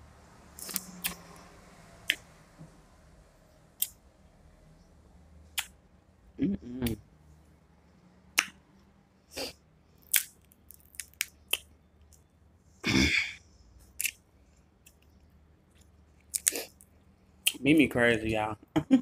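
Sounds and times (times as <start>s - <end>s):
wet chewing and sucking: 0.6s - 1.5s, 14.8s - 17.6s.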